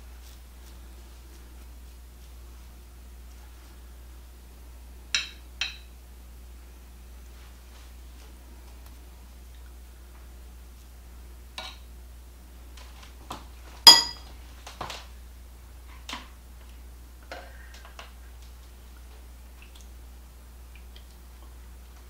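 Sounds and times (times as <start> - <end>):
metal utensils clinking on plates: 13.9 - 14.3.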